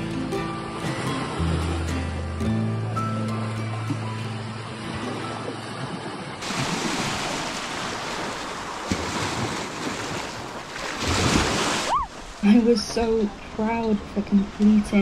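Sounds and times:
background music: 0:00.0 - 0:05.7
sea waves breaking on shore: 0:00.0 - 0:15.0.

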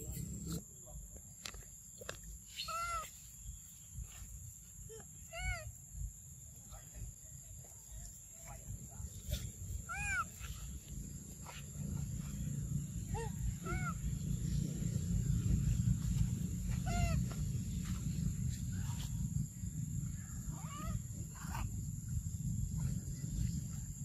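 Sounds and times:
steady low rumble: 0:00.0 - 0:00.6, 0:05.7 - 0:24.0
infant monkey squeaking: 0:02.5 - 0:03.3, 0:09.2 - 0:10.7, 0:13.1 - 0:14.1, 0:16.7 - 0:17.4, 0:20.5 - 0:21.8.

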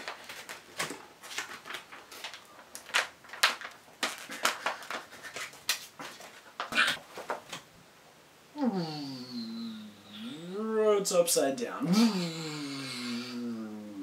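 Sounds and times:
paper crackling and ripping: 0:00.0 - 0:06.7.

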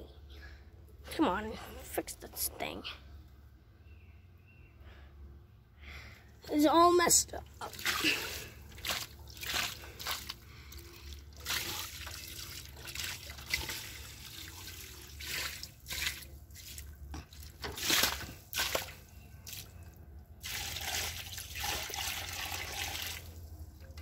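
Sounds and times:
water sloshing in a bucket: 0:07.3 - 0:24.0.

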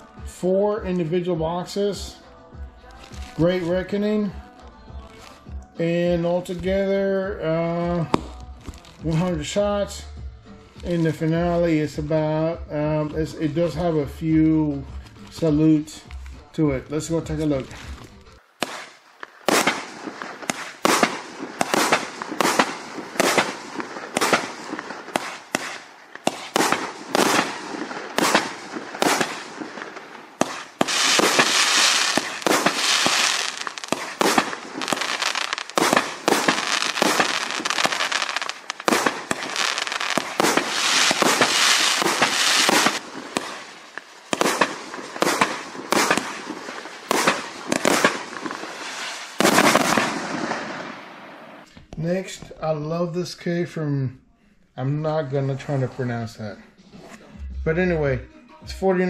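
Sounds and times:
fireworks launching and bursting: 0:03.0 - 0:04.4, 0:05.0 - 0:10.0, 0:10.7 - 0:15.8, 0:16.7 - 0:52.6
firework crackling: 0:17.4 - 0:51.7.

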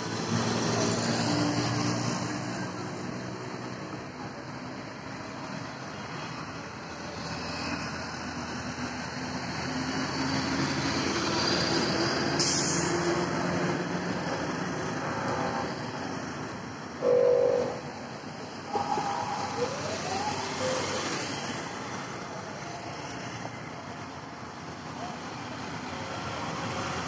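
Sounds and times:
road traffic passing: 0:00.0 - 0:27.0
vehicle engine: 0:00.0 - 0:27.0
loud horn blast: 0:17.0 - 0:18.0.

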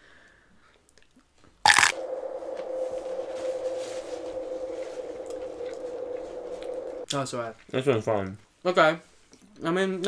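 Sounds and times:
chicken nugget crunching bite: 0:01.7 - 0:02.0
steady hum: 0:01.7 - 0:07.1.

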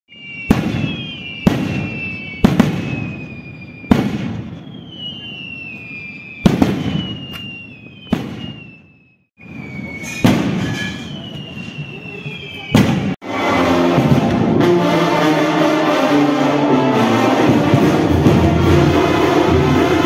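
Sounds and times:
high whistle falling in pitch: 0:00.1 - 0:14.4
rockets bursting with sharp bangs: 0:00.2 - 0:08.9, 0:09.9 - 0:11.5, 0:12.7 - 0:13.2.

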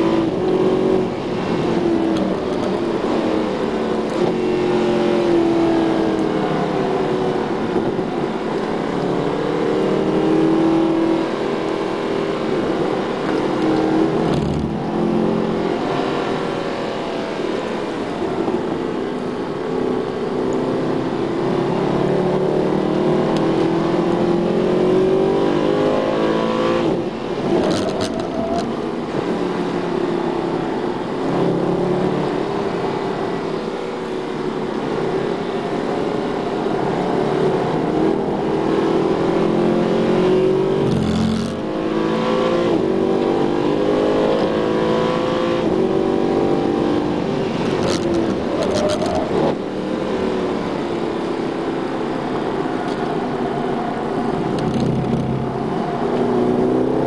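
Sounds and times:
car engine revving hard: 0:36.8 - 0:49.7.

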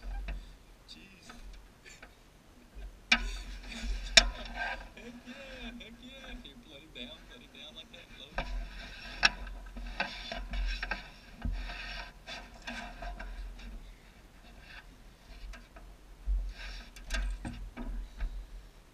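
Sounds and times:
low rumble: 0:02.8 - 0:09.9.

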